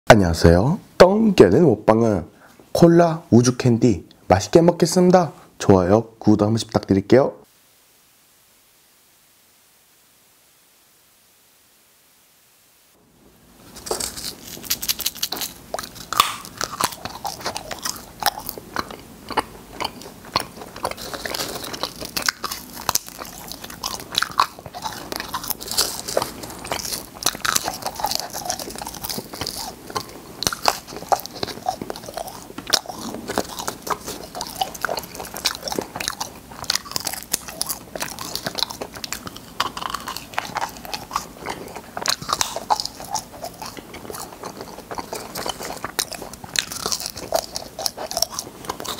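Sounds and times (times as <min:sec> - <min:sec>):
crunching candies: 0:13.6 - 0:48.9.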